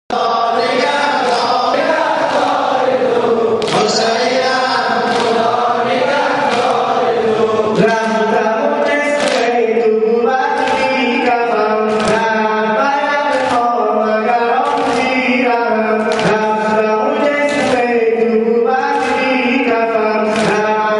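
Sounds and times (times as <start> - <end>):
man chanting into a microphone: 0.1 - 20.9
mourners' voices: 0.1 - 20.9
chest slaps: 3.6 - 4.2, 4.9 - 5.5, 6.4 - 6.9, 9.2 - 9.6, 11.9 - 12.3, 16.1 - 16.6.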